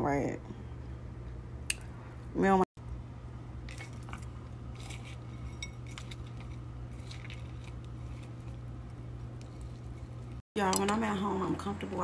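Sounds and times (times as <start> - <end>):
steady low hum: 0.0 - 12.0
fork clinking on glass bowl: 4.8 - 6.6.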